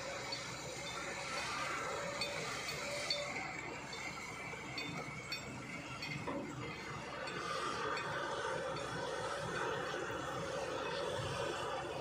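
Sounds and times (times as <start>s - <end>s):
excavator diesel engine running: 0.0s - 12.0s
light clinks: 2.0s - 9.8s.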